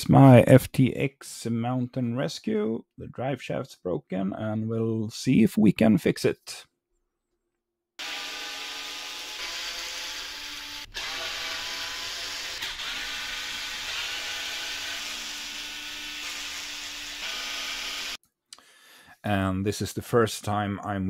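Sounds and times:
small power tool whining: 8.0 - 18.2.

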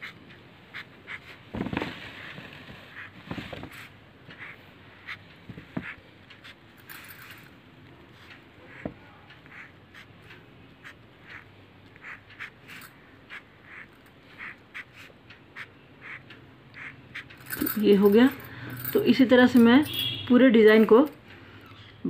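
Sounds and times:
fabric rustling: 1.5 - 4.0
felt-tip pen squeaking on cloth: 10.8 - 16.2.

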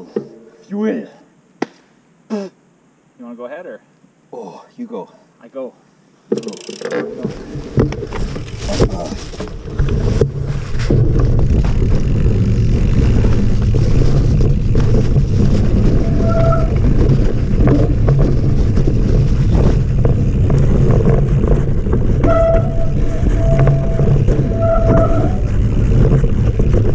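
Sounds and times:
bike clattering over roots: 6.3 - 26.9
tyre rumble: 7.0 - 26.9
wind rushing on microphone: 7.8 - 26.9.

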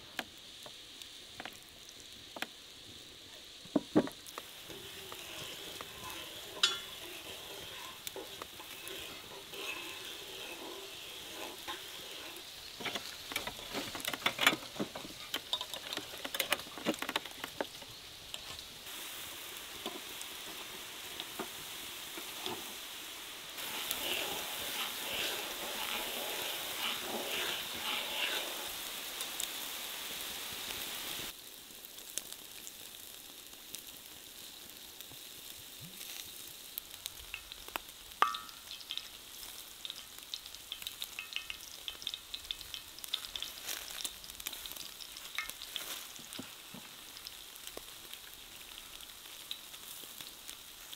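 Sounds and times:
food sizzling on grill: 0.0 - 50.9.

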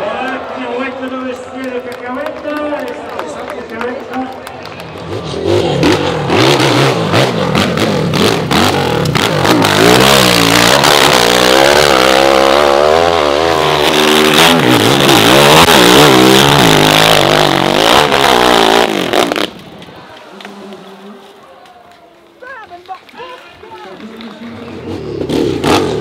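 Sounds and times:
dirt bike engine revving: 4.8 - 19.6, 24.4 - 26.0.

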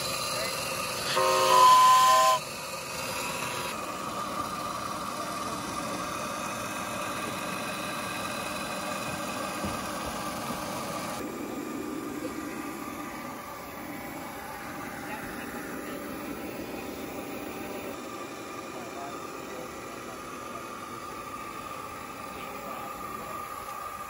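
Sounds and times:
steam hissing: 0.0 - 11.3
steam locomotive whistle blast: 1.0 - 2.5.

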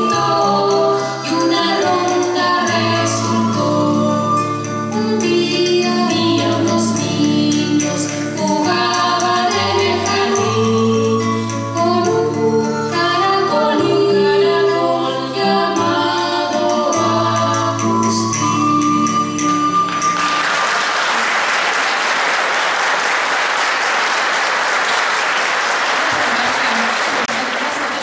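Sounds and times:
choral singing: 0.0 - 4.4, 5.0 - 20.0.

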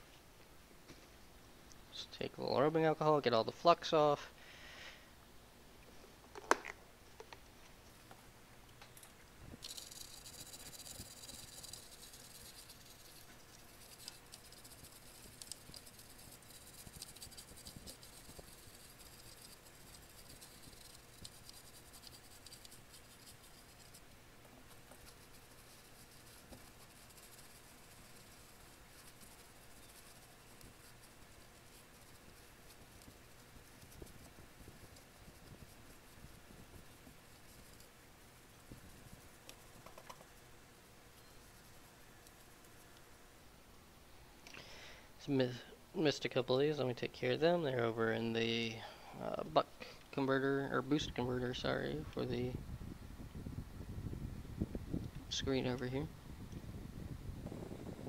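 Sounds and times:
brush scrubbing circuit board: 9.6 - 40.4, 41.2 - 42.8.

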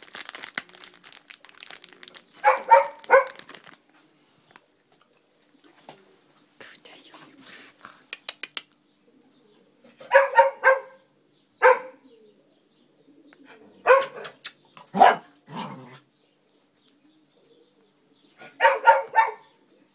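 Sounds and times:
dog barking: 2.4 - 3.4, 10.0 - 12.0, 13.8 - 15.4, 18.4 - 19.6
sharp clicks: 8.0 - 8.8.

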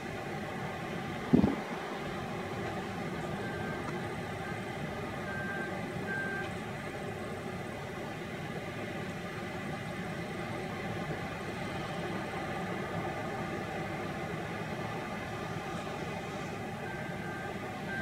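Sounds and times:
diesel engine running: 0.0 - 18.0
reversing alarm beeps: 3.4 - 4.6, 5.2 - 6.5, 16.8 - 18.0.

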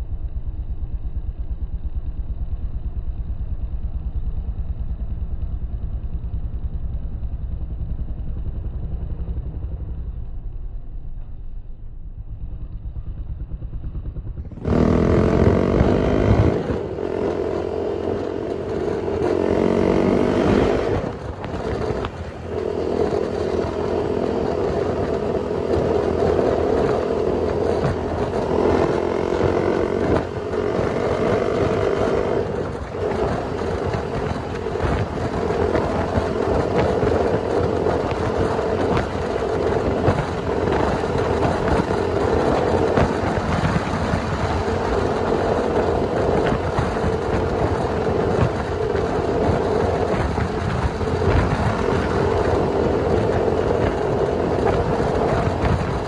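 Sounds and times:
motorcycle engine cruising: 0.0 - 56.0
wind noise: 14.5 - 56.0.

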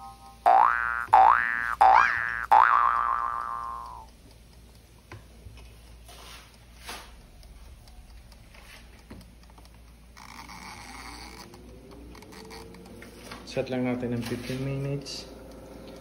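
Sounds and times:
cartoon boing sound effect: 0.0 - 4.0
timer ticking: 0.0 - 14.1, 15.0 - 16.0.

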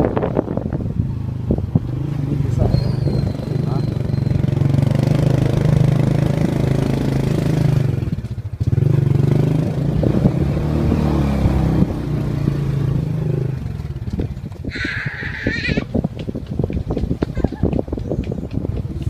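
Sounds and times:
motorbike clattering over bumps: 11.4 - 14.8, 15.8 - 19.0.

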